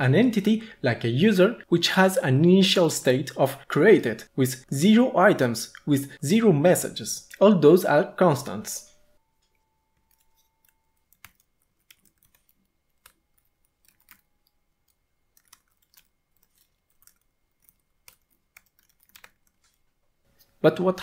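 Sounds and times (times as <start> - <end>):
computer keyboard clicks: 10.1 - 14.2, 14.8 - 19.8.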